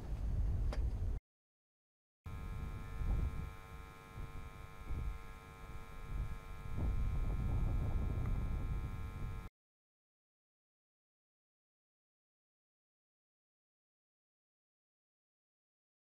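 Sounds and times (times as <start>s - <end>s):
steady machine hum: 2.3s - 9.5s.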